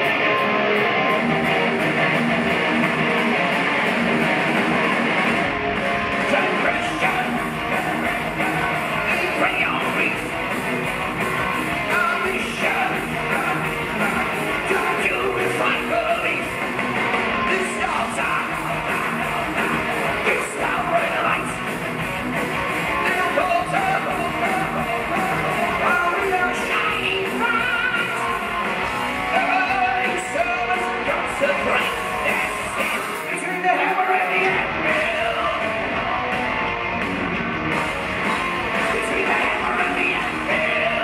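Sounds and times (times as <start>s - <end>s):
live heavy metal band: 0.0s - 41.0s
person singing lead vocal: 6.2s - 10.4s, 11.8s - 16.6s, 17.4s - 21.7s, 22.9s - 36.0s, 38.8s - 41.0s.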